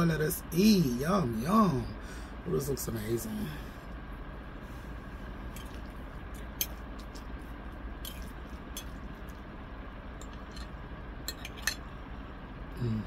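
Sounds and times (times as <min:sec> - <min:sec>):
low room hum: 0:00.0 - 0:13.0
person chewing: 0:08.0 - 0:09.4.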